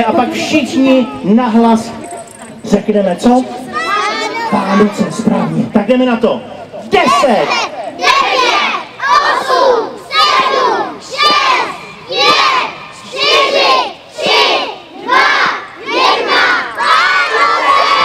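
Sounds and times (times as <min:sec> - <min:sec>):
crowd shouting a countdown: 0:07.0 - 0:18.0
crowd cheering: 0:08.0 - 0:18.0.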